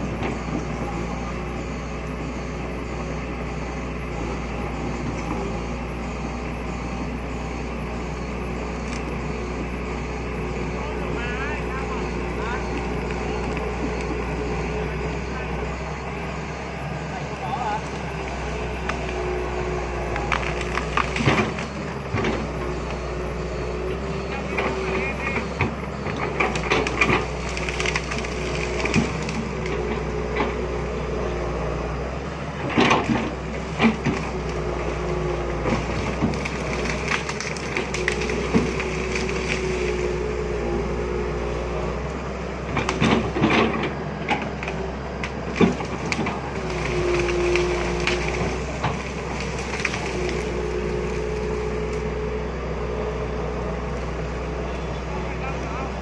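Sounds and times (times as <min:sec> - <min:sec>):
excavator engine droning: 0:00.0 - 0:56.0
hydraulics whining: 0:00.0 - 0:56.0
wood cracking and snapping: 0:20.1 - 0:21.8, 0:26.3 - 0:29.9, 0:35.6 - 0:40.2, 0:44.4 - 0:52.0.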